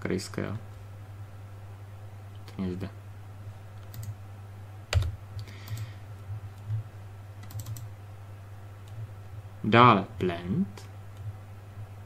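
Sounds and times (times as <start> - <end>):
steady low hum: 0.0 - 12.0
computer keyboard and mouse clicks: 3.8 - 4.2, 4.9 - 5.9, 7.4 - 7.9.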